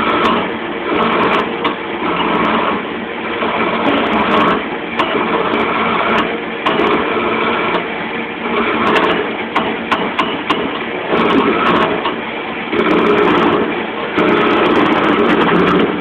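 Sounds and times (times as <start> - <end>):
tool scraping spinning wood: 0.0 - 16.0
wood lathe motor hum: 0.0 - 16.0.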